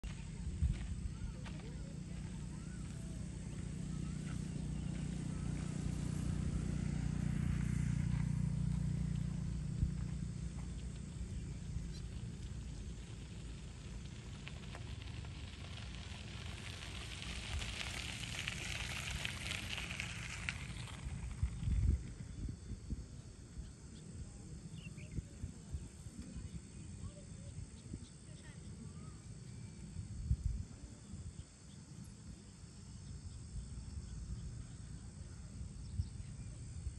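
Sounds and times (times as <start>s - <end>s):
low rumble: 0.0s - 27.9s
insects chirring: 0.0s - 36.9s
water crackling and fizzing: 12.5s - 21.5s.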